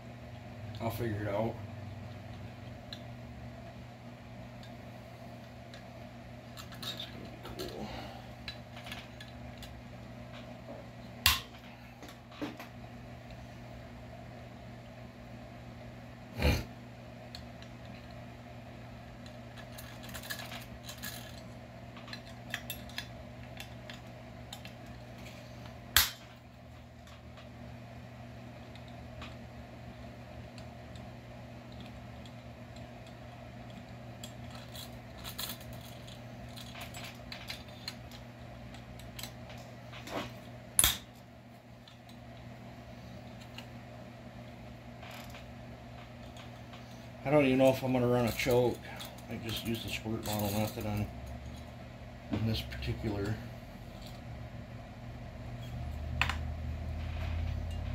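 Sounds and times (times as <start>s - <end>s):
steady low hum: 0.0s - 57.9s
metal parts clinking: 6.6s - 7.8s, 19.6s - 25.0s, 48.2s - 51.7s.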